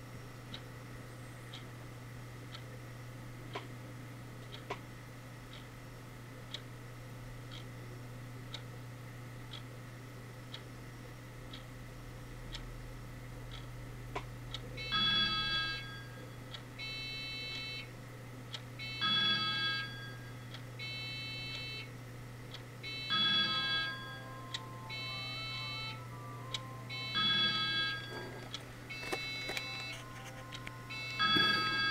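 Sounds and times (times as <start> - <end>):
electronic beeping melody: 22.9 - 31.9.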